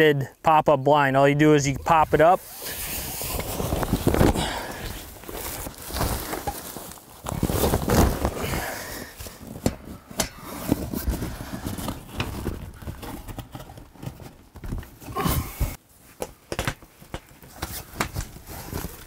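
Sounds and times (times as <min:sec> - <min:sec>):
fabric rustling: 0:02.4 - 0:09.9.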